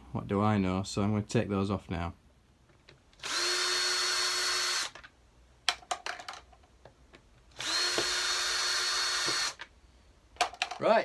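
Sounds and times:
cordless drill whining: 0:03.2 - 0:05.0, 0:07.5 - 0:09.7.

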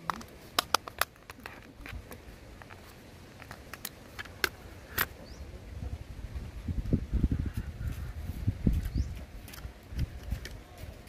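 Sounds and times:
sharp plastic clicks: 0:00.0 - 0:02.0.

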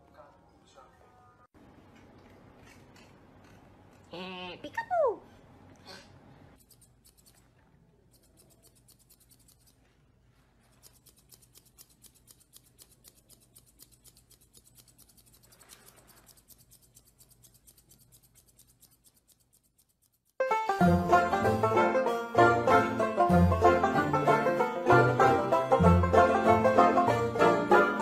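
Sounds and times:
scissors snipping fur: 0:01.9 - 0:04.1, 0:06.6 - 0:09.9, 0:10.6 - 0:20.4.

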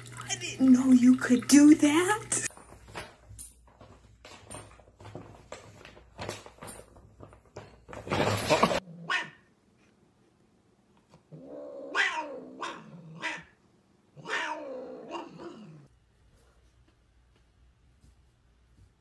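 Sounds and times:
cat yowling: 0:09.0 - 0:09.4, 0:11.4 - 0:13.6, 0:14.2 - 0:15.9.

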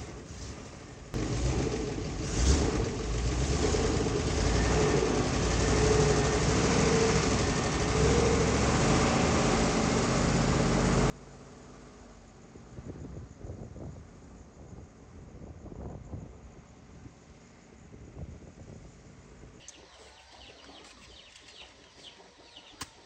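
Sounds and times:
truck engine droning: 0:00.0 - 0:12.8.

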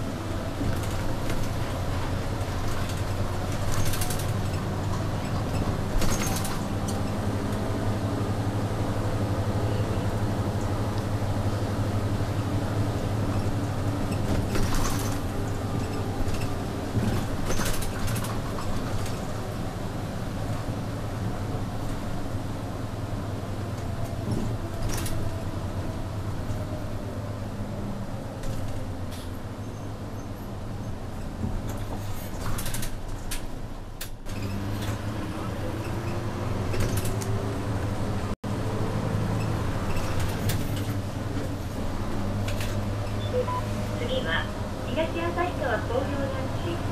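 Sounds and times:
bus engine droning: 0:00.0 - 0:46.9
rattling and clattering: 0:00.6 - 0:07.1, 0:13.3 - 0:19.5, 0:31.4 - 0:35.1.

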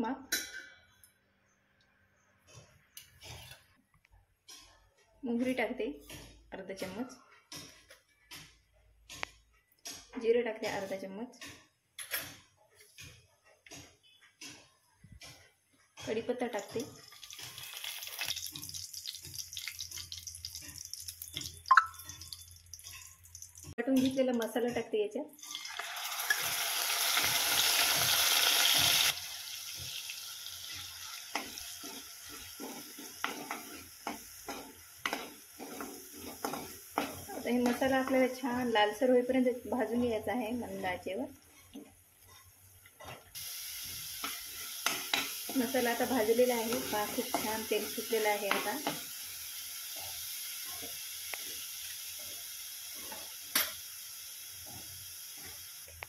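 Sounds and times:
paste sizzling in hot oil: 0:16.7 - 0:23.8, 0:25.4 - 0:40.0, 0:43.3 - 0:56.0
spoon scraping a pan: 0:27.1 - 0:38.7, 0:41.4 - 0:53.9.

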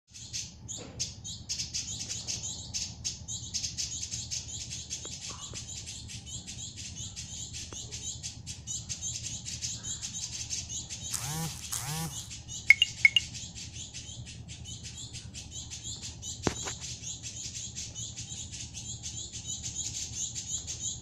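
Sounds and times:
bird chirping rapidly: 0:10.8 - 0:16.4.

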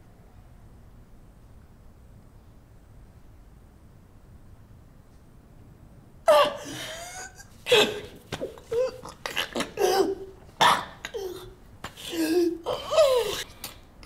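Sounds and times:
person sobbing: 0:06.3 - 0:13.5.

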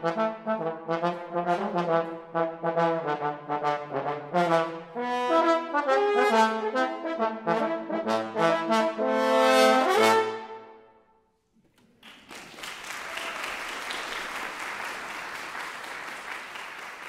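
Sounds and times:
french horn and trombone duet: 0:00.0 - 0:10.8
audience applauding: 0:11.7 - 0:17.0.

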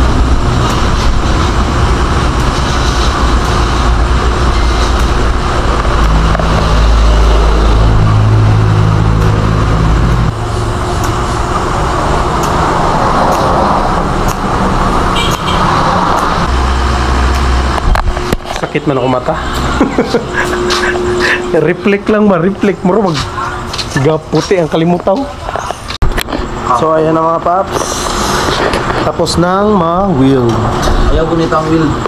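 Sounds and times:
low motor hum: 0:00.0 - 0:24.8.

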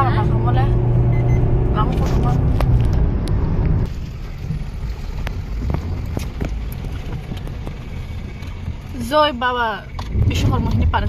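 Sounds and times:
engine and tyre rumble: 0:00.0 - 0:11.0.

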